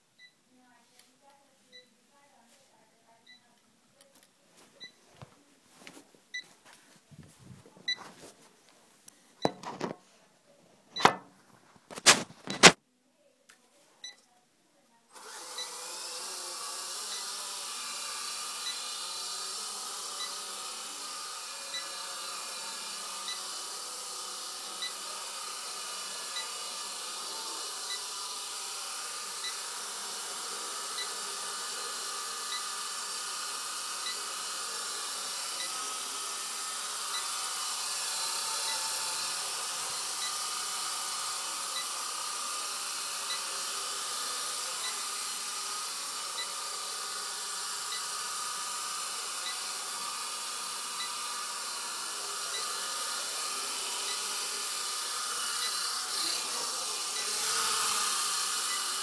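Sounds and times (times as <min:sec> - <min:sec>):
rc helicopter motor whine: 0:15.2 - 0:59.0.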